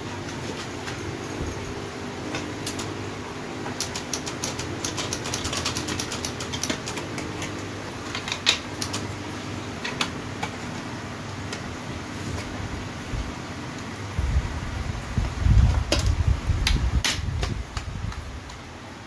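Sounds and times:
steady low hum: 0.0 - 19.0
typewriter clicks and rattles: 3.7 - 9.2.

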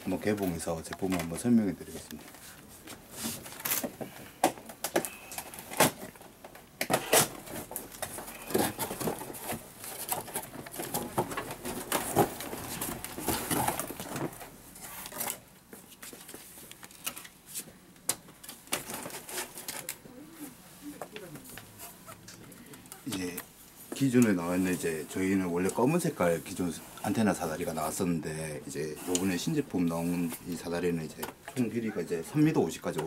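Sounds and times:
cardboard scraping and rustling: 7.0 - 15.4.

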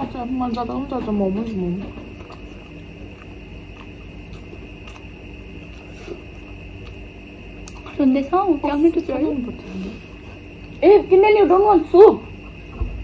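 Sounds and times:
steady room hum: 0.0 - 13.0
faint chewing: 0.4 - 8.2, 9.0 - 10.8.

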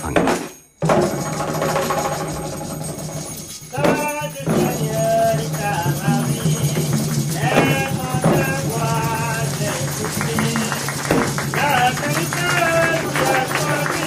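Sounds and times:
hand percussion shaking: 0.0 - 14.0
voices singing a chant: 3.8 - 14.0.

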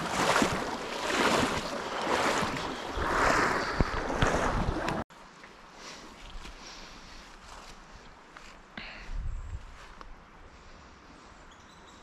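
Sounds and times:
water rushing in a creek: 0.0 - 5.0.

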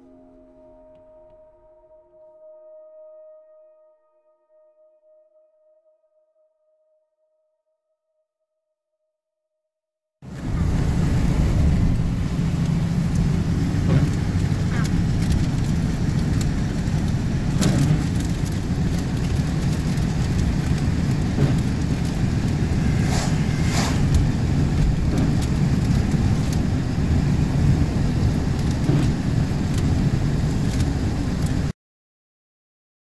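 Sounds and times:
low road rumble: 10.2 - 31.7
hail ticking on window: 10.3 - 22.8, 24.1 - 31.7.

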